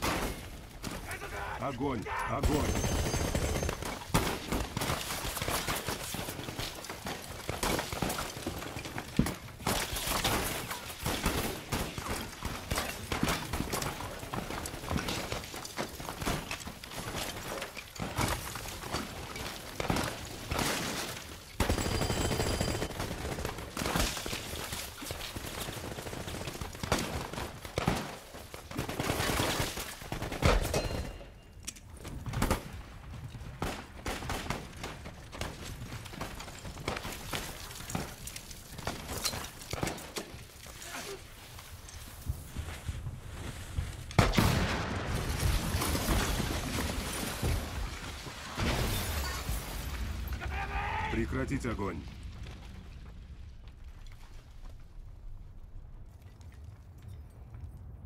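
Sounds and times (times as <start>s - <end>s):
battle rifle gunfire: 2.3s - 8.6s, 21.6s - 24.4s.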